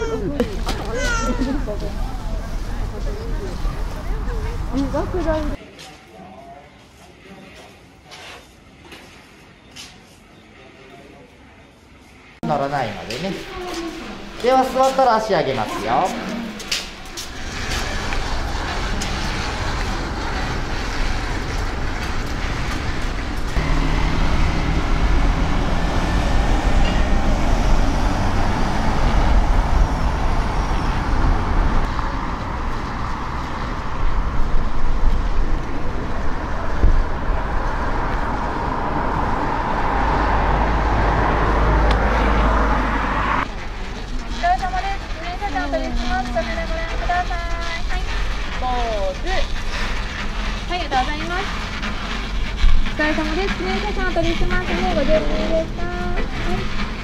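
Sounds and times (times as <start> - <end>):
chairlift mechanical rumbling: 16.4 - 39.7, 43.5 - 57.0.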